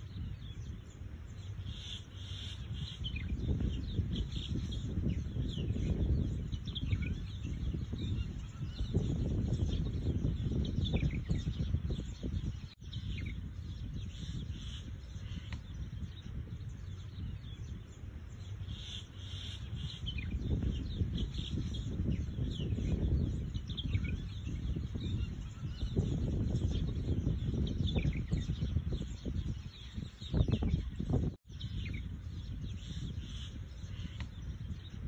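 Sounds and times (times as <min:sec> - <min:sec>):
small birds chirping: 0:00.0 - 0:35.0.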